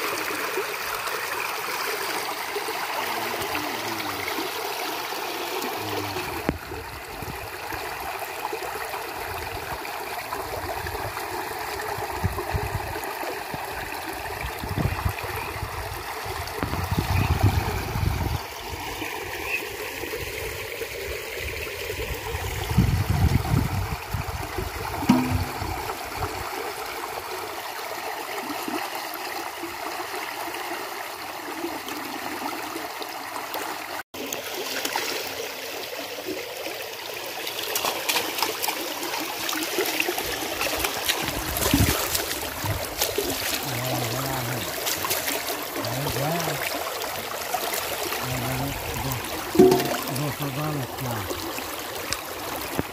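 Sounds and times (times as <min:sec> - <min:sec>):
water rushing into net: 0:24.7 - 0:26.4, 0:37.5 - 0:52.9.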